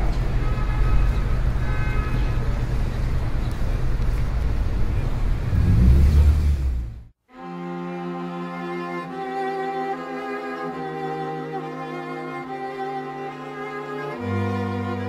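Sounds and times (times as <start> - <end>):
low rumbling noise: 0.0 - 7.2.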